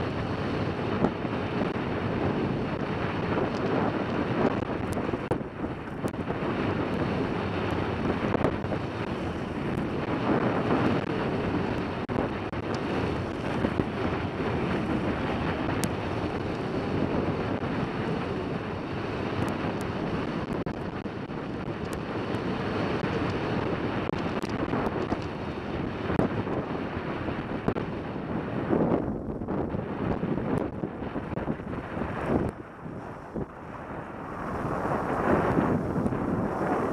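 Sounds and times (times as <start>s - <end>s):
wind rushing over microphone: 0.0s - 36.9s
skis sliding on packed snow: 32.0s - 36.9s.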